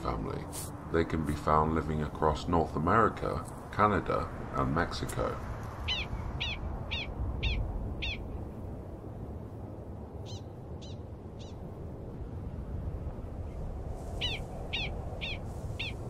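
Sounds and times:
low rumble: 0:00.0 - 0:16.0
prairie dog barking: 0:05.9 - 0:08.2, 0:14.2 - 0:16.0.

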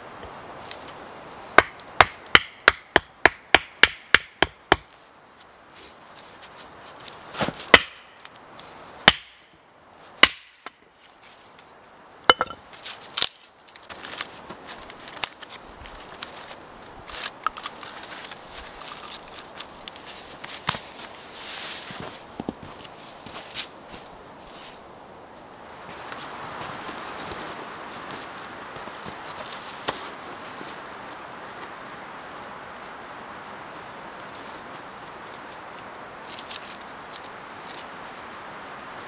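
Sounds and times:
axe splitting firewood: 0:01.6 - 0:04.9, 0:07.4 - 0:08.0, 0:09.0 - 0:09.4, 0:10.2 - 0:10.8, 0:12.3 - 0:12.6
split wood pieces handled: 0:12.3 - 0:23.7, 0:36.3 - 0:37.9.

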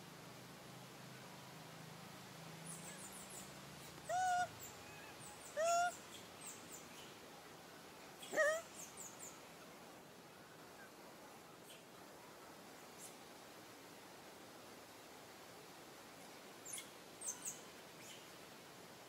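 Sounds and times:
macaque coo calls: 0:04.0 - 0:06.0, 0:08.2 - 0:08.7.

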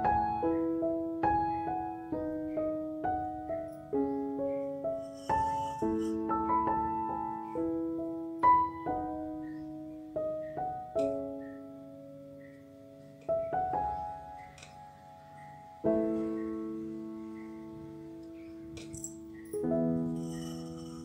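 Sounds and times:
slow piano music: 0:00.0 - 0:21.0.

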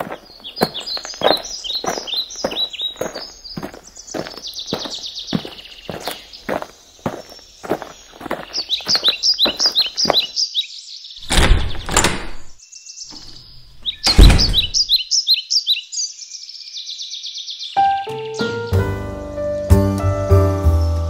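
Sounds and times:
songbird chirping: 0:00.0 - 0:21.0
low thumps: 0:11.2 - 0:14.9.

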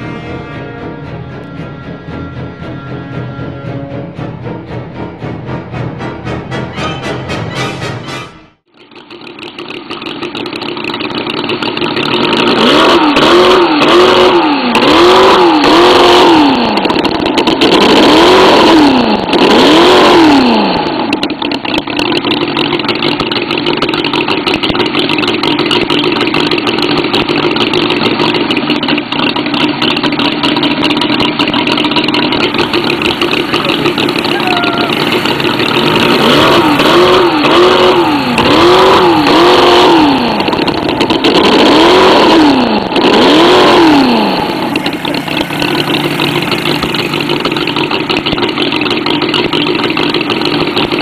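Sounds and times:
small quad engine revving: 0:00.0 - 0:03.0, 0:08.6 - 0:51.0.

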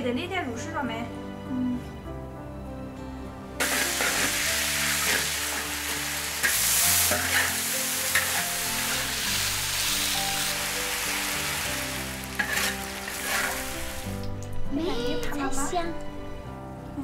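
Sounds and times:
spatula scraping a wok: 0:03.6 - 0:14.2
food sizzling in a wok: 0:03.6 - 0:14.3.

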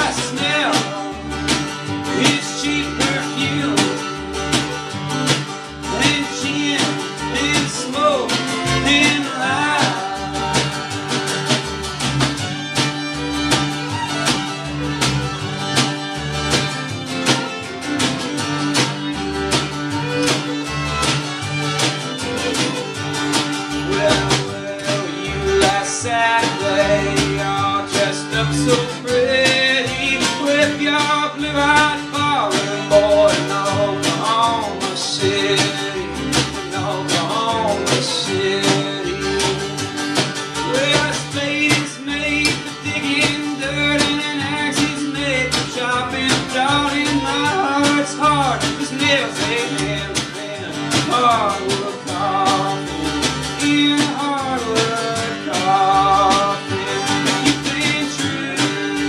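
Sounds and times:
man singing: 0:00.0 - 0:04.8, 0:05.8 - 0:11.3, 0:23.7 - 0:40.0, 0:40.6 - 0:59.0
bass drum beat: 0:00.0 - 0:59.0
fiddle: 0:00.0 - 0:59.0
strummed acoustic guitar: 0:00.0 - 0:59.0
upright bass: 0:00.0 - 0:59.0.

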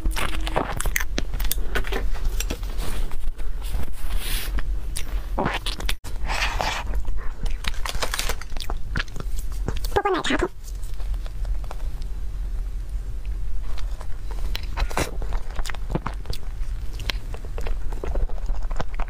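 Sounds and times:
constant low hum: 0:00.0 - 0:19.0
plastic gloves rustling: 0:06.8 - 0:12.0.

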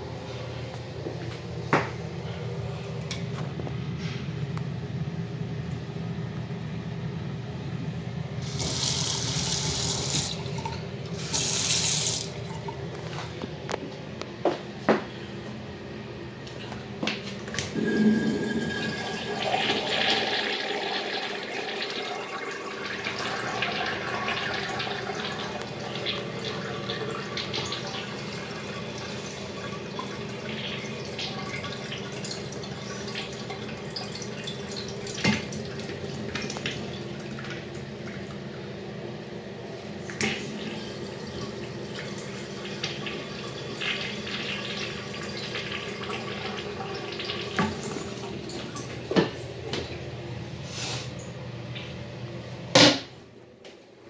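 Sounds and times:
urinal flushing: 0:08.3 - 0:13.8, 0:16.4 - 0:52.6.

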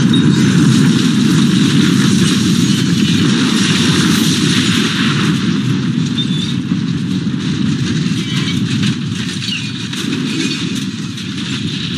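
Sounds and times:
explosion rumble: 0:00.0 - 0:11.9.

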